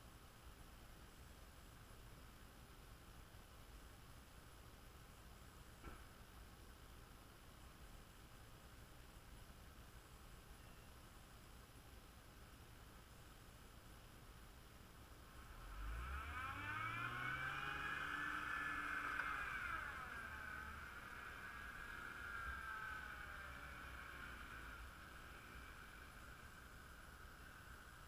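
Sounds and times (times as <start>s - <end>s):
distant engine revving: 15.4s - 27.9s.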